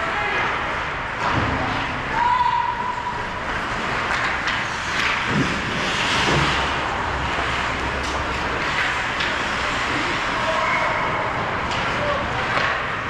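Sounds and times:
skates scraping ice: 2.8s - 13.0s
sticks and puck clacking: 3.5s - 13.0s.

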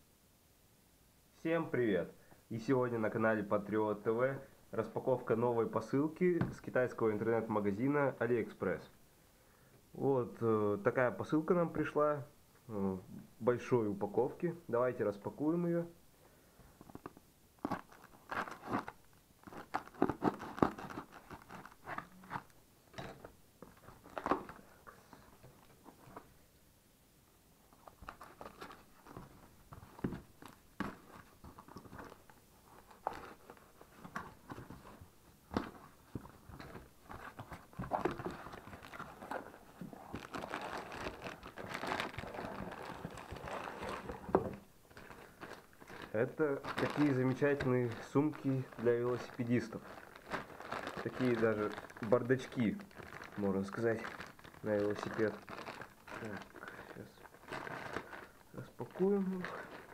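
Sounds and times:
plastic wrapping crinkling: 16.8s - 26.4s, 27.7s - 59.9s
cardboard and tape crackling: 16.9s - 26.2s, 27.8s - 59.9s.

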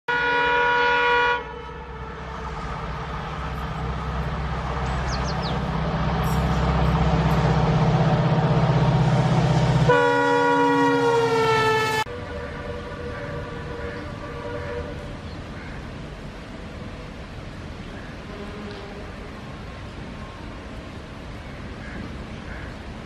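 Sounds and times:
locomotive horn: 0.1s - 2.7s, 9.5s - 15.2s
diesel locomotive engine rumble: 0.1s - 23.0s.

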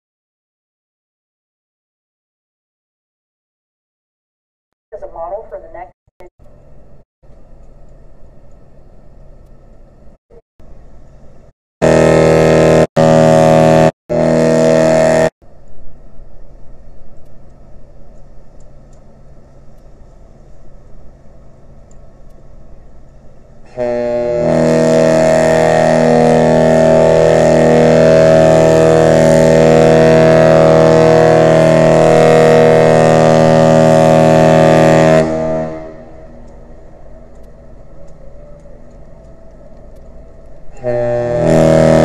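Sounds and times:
deep ship's horn blasts: 11.8s - 15.3s, 23.6s - 42.0s.

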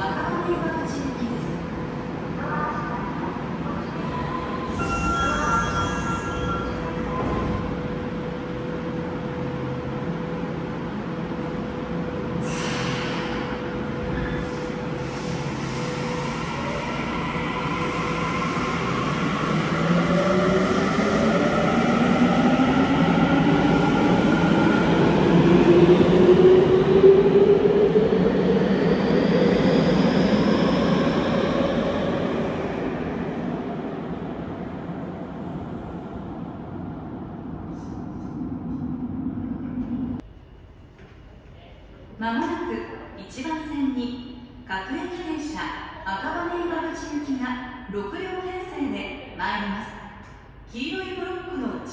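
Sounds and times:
short hiss of train: 12.4s - 13.6s.

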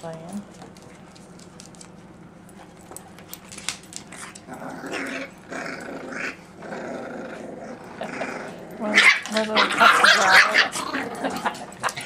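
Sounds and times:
dogs growling: 4.1s - 12.0s.

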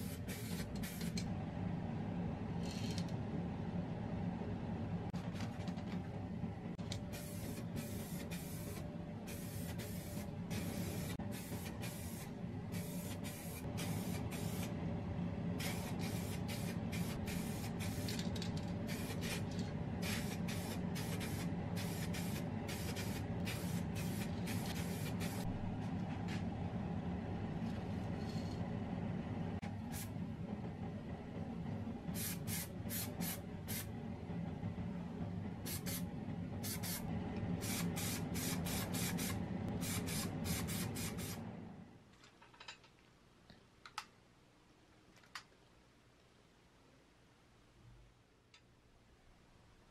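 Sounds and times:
spray can hissing bursts: 0.0s - 1.2s, 7.1s - 14.7s, 15.6s - 18.1s, 18.9s - 25.4s, 32.2s - 33.8s, 36.6s - 37.0s, 37.6s - 41.4s
steady low hum: 0.0s - 42.1s.

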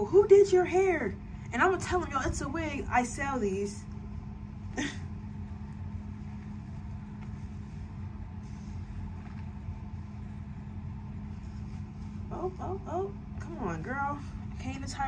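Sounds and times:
low machine hum: 0.0s - 15.0s
fabric rustling: 4.8s - 14.9s.

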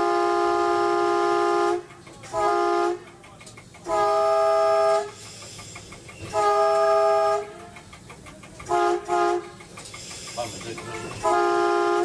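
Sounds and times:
railcar horn blasts: 0.0s - 3.2s, 3.8s - 5.2s, 6.3s - 7.9s, 8.6s - 9.6s, 10.4s - 12.0s
railcar running noise: 0.0s - 12.0s.

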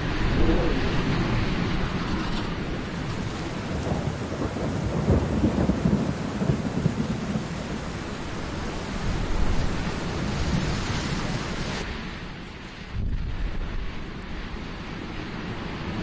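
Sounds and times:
thunder rumbling: 0.0s - 11.9s
steady rain: 0.0s - 16.0s.

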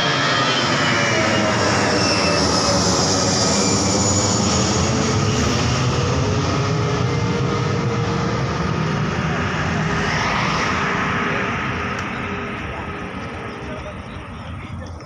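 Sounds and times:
jet airliner passing overhead: 0.0s - 15.0s.

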